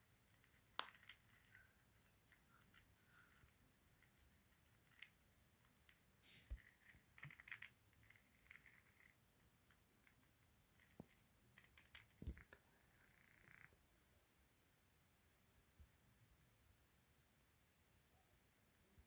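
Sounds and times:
faint clicks and scratches: 0.0s - 13.8s.

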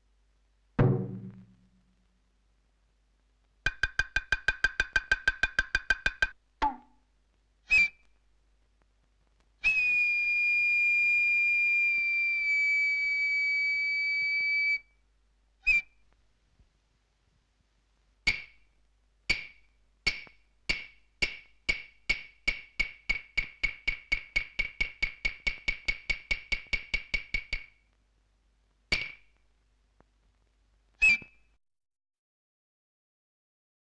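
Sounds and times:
wooden clappers striking: 3.7s - 6.4s, 19.3s - 27.7s
shrill whistle-like note: 7.7s - 8.0s, 9.6s - 14.9s, 15.6s - 16.0s, 31.0s - 31.4s.

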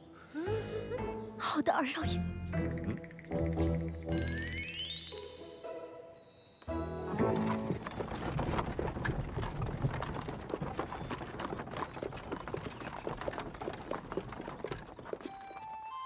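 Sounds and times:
hooves clopping: 6.7s - 16.0s
wooden-wheeled carts rumbling: 6.7s - 16.0s.

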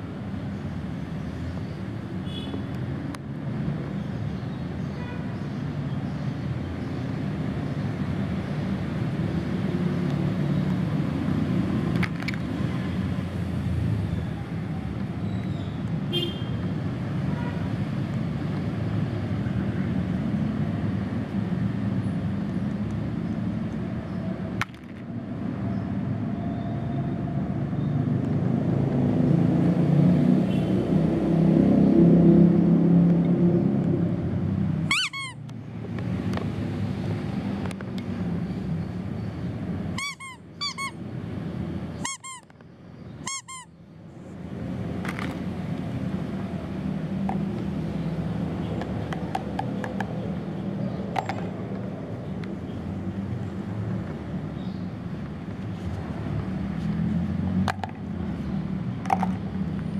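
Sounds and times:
traffic rumble: 0.0s - 59.9s
sharp high squeaks: 34.9s - 35.5s, 40.0s - 41.0s, 42.0s - 42.6s, 43.2s - 43.8s.

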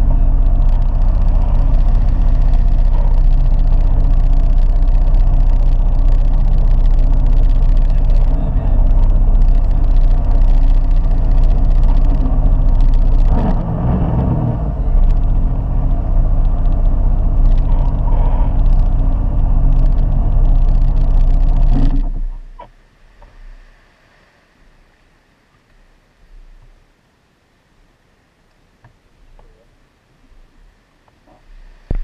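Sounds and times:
jet ski engine running: 0.0s - 22.3s.

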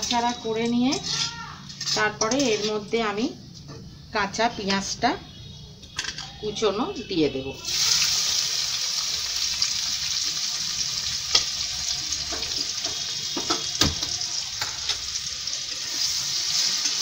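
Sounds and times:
onion sizzling in hot oil: 0.0s - 3.2s, 7.6s - 17.0s
spatula scraping pan: 0.9s - 3.0s.

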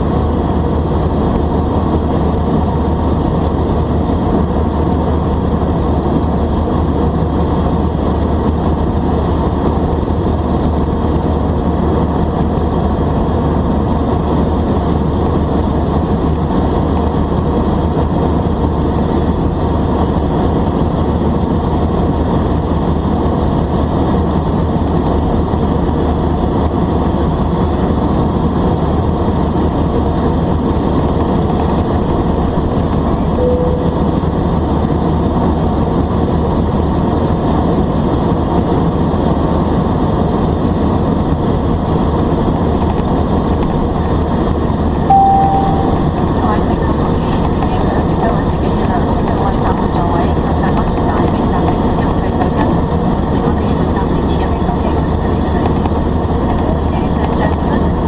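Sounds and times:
jet engines humming: 0.0s - 58.0s.

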